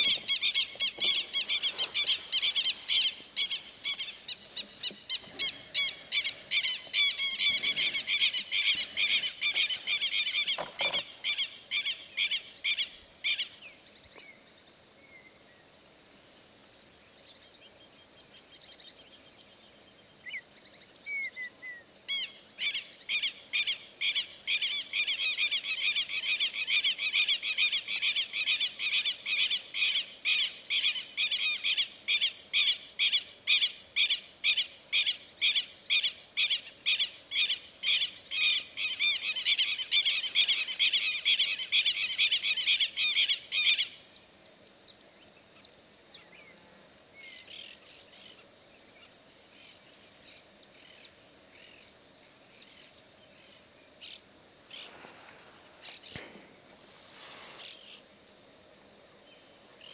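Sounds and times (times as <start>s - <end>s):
birds chirping: 0.0s - 15.5s, 55.8s - 59.9s
rapid repeated bird calls: 0.0s - 15.5s, 16.2s - 59.9s.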